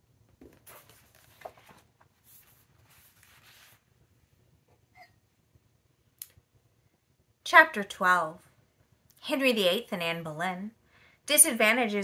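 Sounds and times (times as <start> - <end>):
pages rustling and turning: 0.4 - 3.9.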